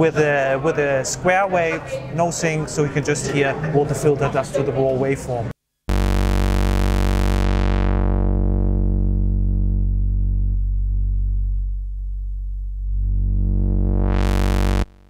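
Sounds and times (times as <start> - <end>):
low synthesizer note filter sweep: 5.9 - 15.0.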